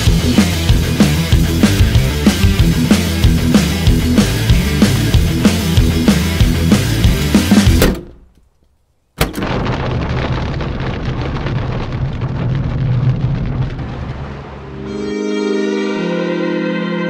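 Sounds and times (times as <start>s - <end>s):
thunder crack and rolling rumble: 9.3s - 14.9s
music with sustained tones: 14.7s - 17.0s.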